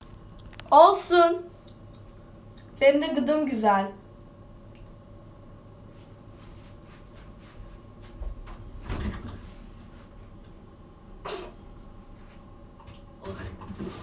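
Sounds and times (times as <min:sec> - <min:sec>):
soft footsteps: 0:05.9 - 0:10.4.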